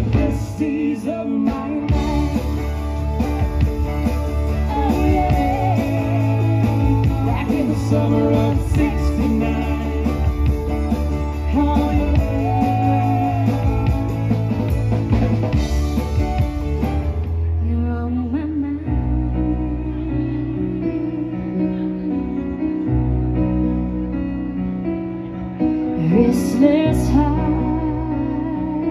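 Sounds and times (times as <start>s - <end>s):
woman singing: 0.0s - 2.9s, 4.4s - 14.6s, 17.6s - 22.8s, 26.0s - 28.9s
drum kit: 0.0s - 17.6s
bass notes: 0.0s - 28.9s
electric guitars: 0.0s - 28.9s
keyboards: 0.0s - 28.9s.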